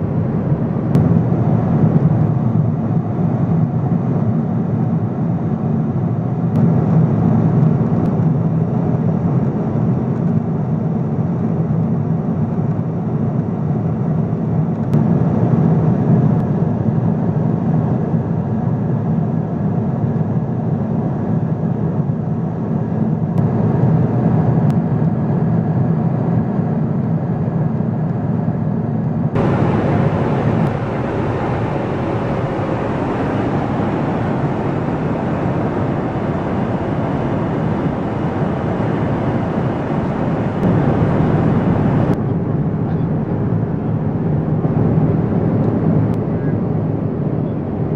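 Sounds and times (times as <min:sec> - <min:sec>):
airflow over fuselage: 0:00.0 - 0:05.6, 0:29.4 - 0:47.9
airplane engines rumbling: 0:00.0 - 0:47.9.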